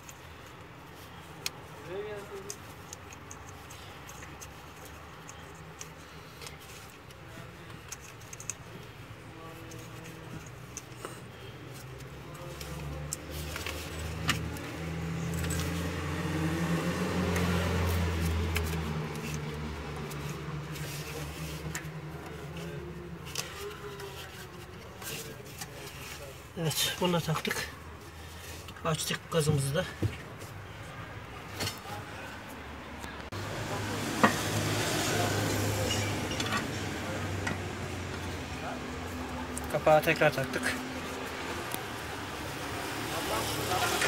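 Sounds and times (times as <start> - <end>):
metallic clinks of parts: 2.4 - 8.8
passing vehicle engine hum: 11.8 - 24.4, 30.5 - 44.0.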